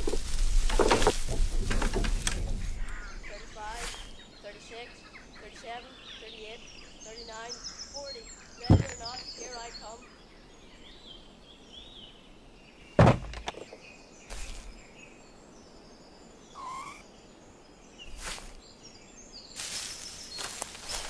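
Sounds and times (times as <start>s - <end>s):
rustling noise: 0.0s - 4.3s, 13.2s - 14.8s, 18.0s - 18.6s, 19.6s - 21.0s
small birds chirping: 0.0s - 21.0s
heavy thump: 8.7s - 9.0s, 13.0s - 13.5s.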